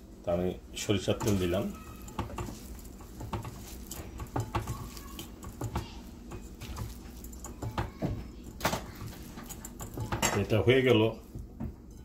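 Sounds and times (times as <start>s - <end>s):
wet squishing of mashed cabbage: 1.0s - 10.6s
fingers clicking on plate: 1.2s - 10.4s.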